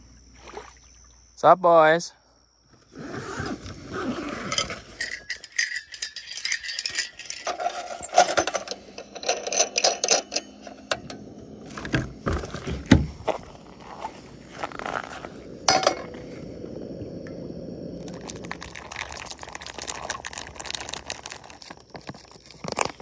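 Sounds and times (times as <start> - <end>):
small objects rattling and clinking: 4.4 - 11.2, 18.0 - 23.0.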